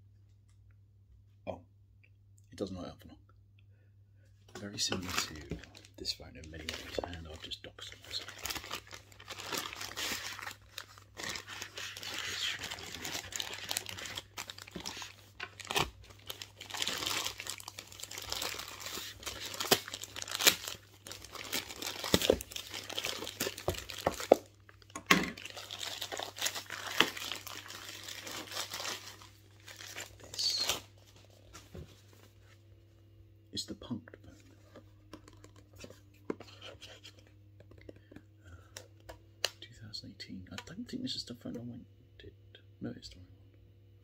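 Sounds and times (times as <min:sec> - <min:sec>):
packaging crinkling and tearing: 0:04.8 - 0:31.2.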